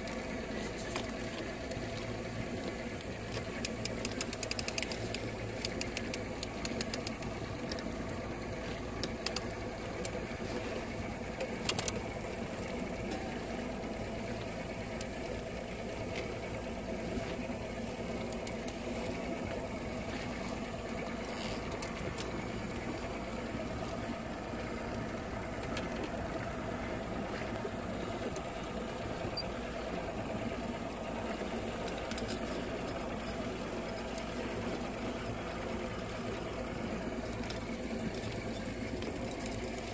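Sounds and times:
boat motor humming: 0.0s - 39.9s
water noise: 0.0s - 39.9s
sharp clicks: 3.6s - 7.9s.

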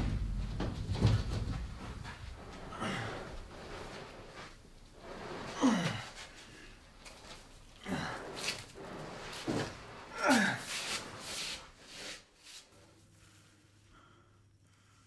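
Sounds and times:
person breathing heavily: 2.4s - 3.9s
person groaning: 2.7s - 3.3s, 5.6s - 6.2s, 10.1s - 10.7s.

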